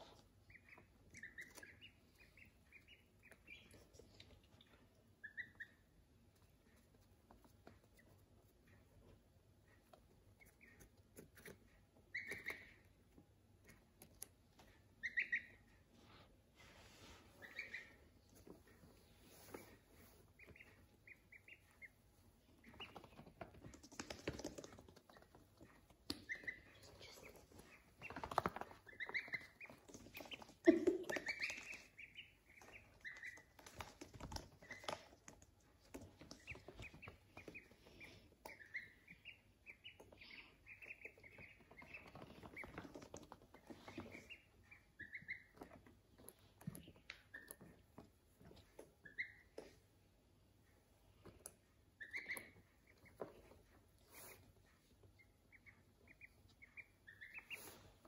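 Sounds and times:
ducklings peeping: 0:00.0 - 0:58.0.

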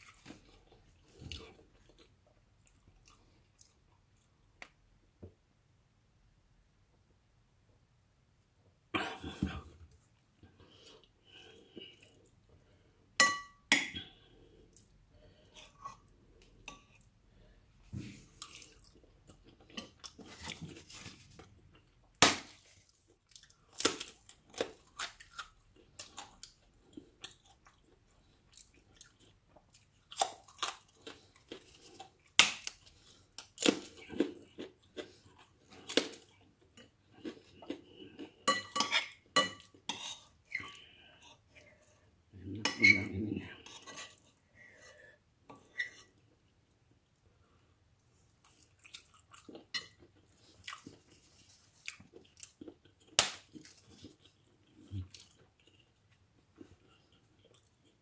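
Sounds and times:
chewing food: 0:00.0 - 0:04.5, 0:18.1 - 0:44.3, 0:48.0 - 0:58.0
spoon clinking against bowl: 0:13.2 - 0:13.6.

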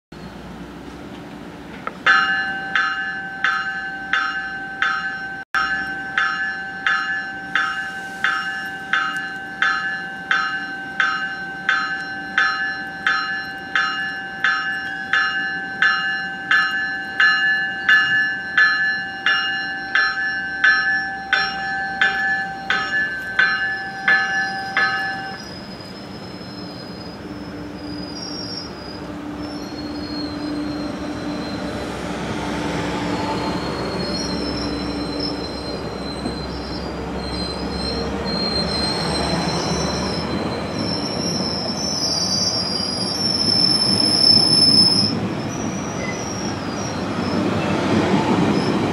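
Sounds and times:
train coaches rumbling past: 0:00.2 - 0:48.9
train warning bell ringing: 0:02.1 - 0:32.0
faint high wheel squeal: 0:19.8 - 0:32.2, 0:33.1 - 0:47.8.

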